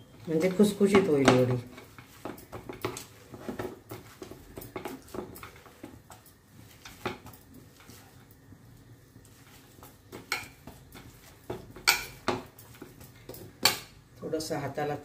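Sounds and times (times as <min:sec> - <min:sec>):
hands kneading wet dough: 0:00.0 - 0:14.1.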